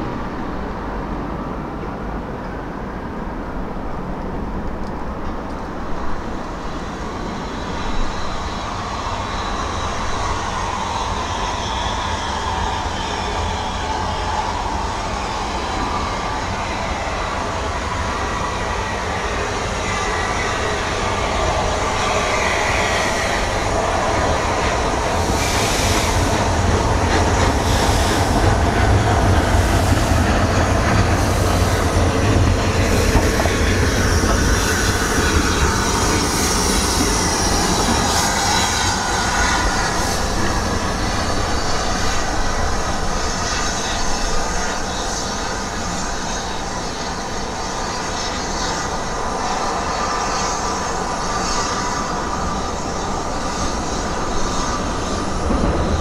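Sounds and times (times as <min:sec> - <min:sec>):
wheels rumbling on rail: 0:00.0 - 0:56.0
faint high wheel squeal: 0:06.3 - 0:55.4.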